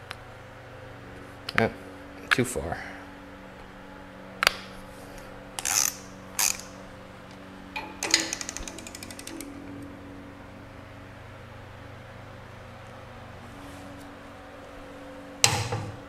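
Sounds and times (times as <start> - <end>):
ratchet clicks: 5.6 - 6.8, 7.8 - 9.6
wrench click: 5.6 - 6.8, 7.8 - 9.5.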